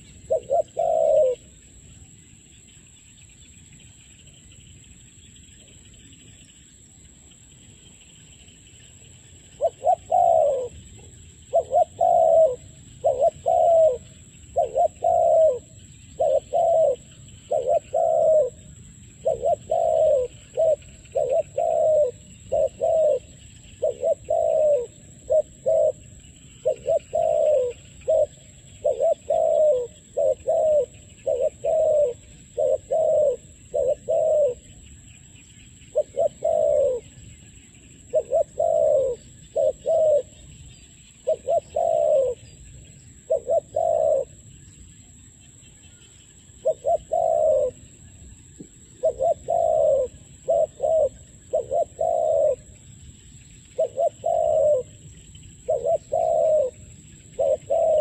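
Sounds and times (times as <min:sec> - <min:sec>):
doves cooing: 0:00.0 - 0:01.6, 0:09.4 - 0:34.8, 0:35.9 - 0:37.2, 0:38.0 - 0:40.6, 0:41.2 - 0:44.4, 0:46.6 - 0:48.1, 0:48.9 - 0:52.8, 0:53.6 - 0:58.0.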